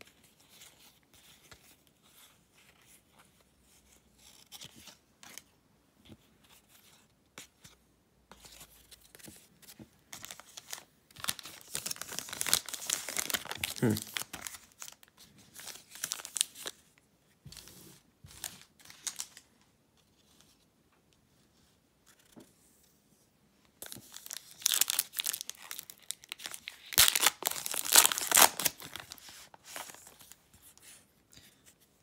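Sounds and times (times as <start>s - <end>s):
foil pack crinkling: 11.2s - 15.0s, 24.1s - 30.2s
foil pack tearing: 24.6s - 29.1s.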